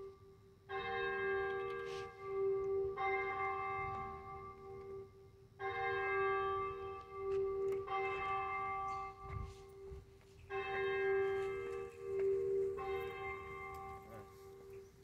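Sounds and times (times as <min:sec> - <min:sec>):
church bell tolling: 0:00.0 - 0:15.0.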